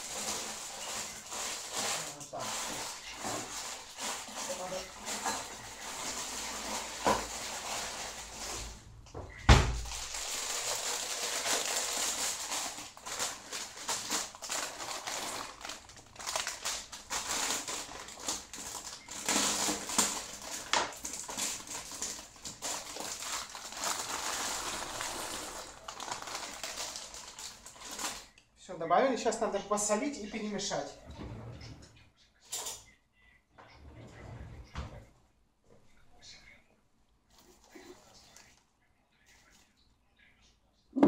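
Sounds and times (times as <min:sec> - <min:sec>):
plastic bag crinkling: 0:00.0 - 0:08.9, 0:09.7 - 0:28.4
pasta pouring into a pot: 0:09.8 - 0:28.3.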